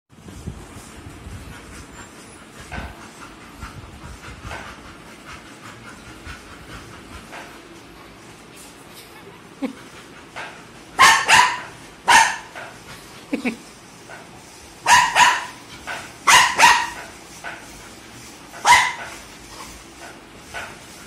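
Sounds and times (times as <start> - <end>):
dog barking: 11.0 - 12.5, 14.9 - 15.6, 16.3 - 17.0, 18.6 - 19.0.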